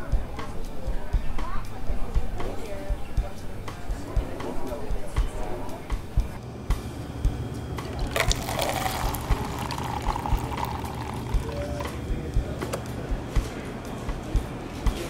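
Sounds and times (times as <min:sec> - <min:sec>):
liquid pouring into cup: 0:07.8 - 0:12.0.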